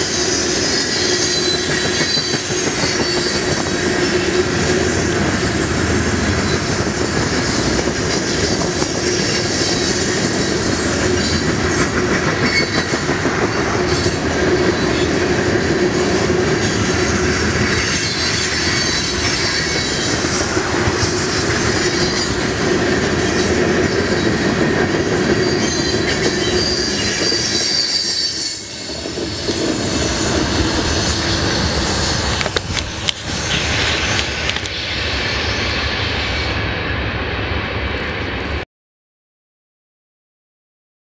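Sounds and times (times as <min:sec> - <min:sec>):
high wheel squeals: 0:00.0 - 0:11.5, 0:16.6 - 0:22.6, 0:25.3 - 0:32.6
freight train rumbling past: 0:00.0 - 0:38.6.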